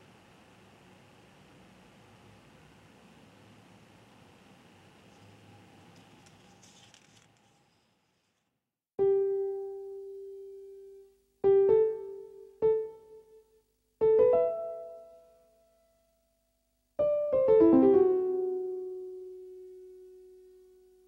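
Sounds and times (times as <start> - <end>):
solo piano notes: 9.0 - 16.1, 17.0 - 21.0.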